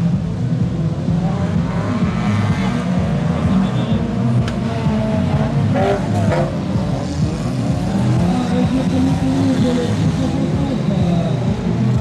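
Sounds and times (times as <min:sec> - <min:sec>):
racing car engines revving: 0:00.0 - 0:12.0.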